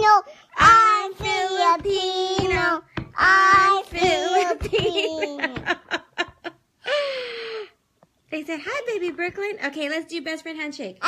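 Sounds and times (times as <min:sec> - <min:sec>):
toddler girl singing: 0:00.0 - 0:05.6.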